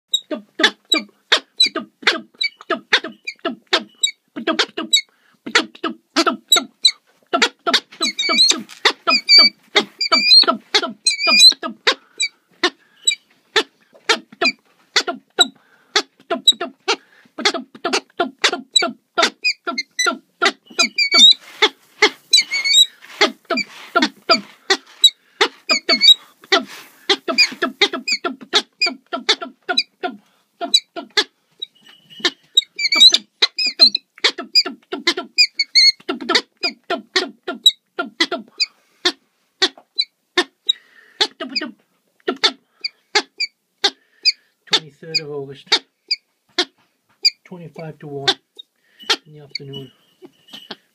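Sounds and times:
falcon calling: 0.2s - 31.3s, 32.1s - 40.1s, 49.0s - 50.8s.

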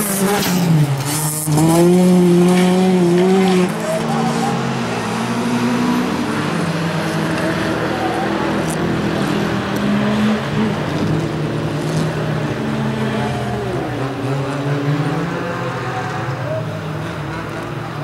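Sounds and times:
race car engines racing: 0.0s - 18.0s.

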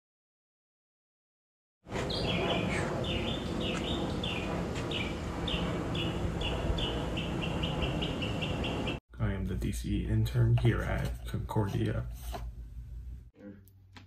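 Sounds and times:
steady low rumble: 1.9s - 10.5s.

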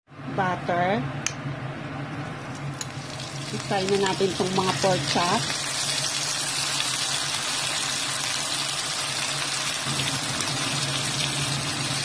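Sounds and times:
low steady hum: 0.1s - 7.8s
pork chops sizzling in a frying pan: 2.8s - 12.0s.

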